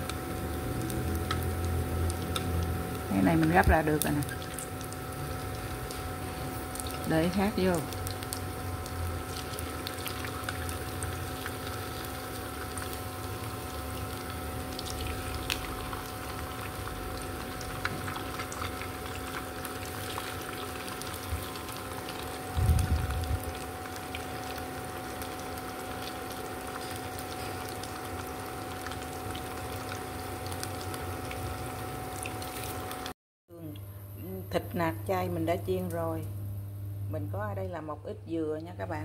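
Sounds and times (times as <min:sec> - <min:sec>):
patties sizzling in hot oil: 0:00.0 - 0:33.2
faint hum: 0:00.0 - 0:39.0.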